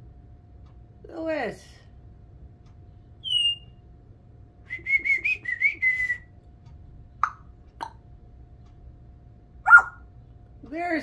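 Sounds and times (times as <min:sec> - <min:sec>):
parrot whistling: 0:03.2 - 0:03.7, 0:09.7 - 0:10.0.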